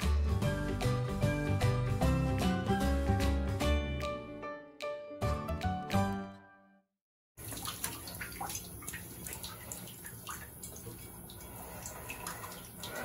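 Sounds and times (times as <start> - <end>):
music track: 0.0 - 6.8
water splashing and dripping: 7.4 - 13.0.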